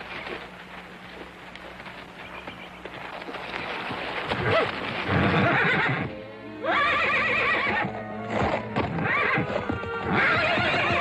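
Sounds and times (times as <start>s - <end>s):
hooves thudding on dirt: 0.0s - 6.1s, 8.2s - 11.0s
horse neighing: 4.3s - 7.9s, 8.9s - 11.0s.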